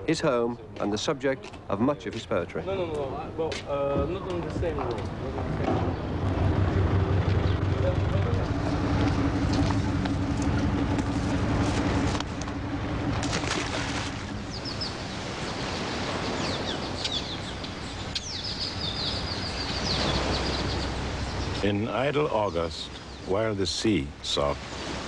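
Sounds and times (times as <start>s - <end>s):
birds chirping: 0.0s - 24.6s
outdoor ambient noise: 0.0s - 25.0s
low engine hum: 4.0s - 23.3s.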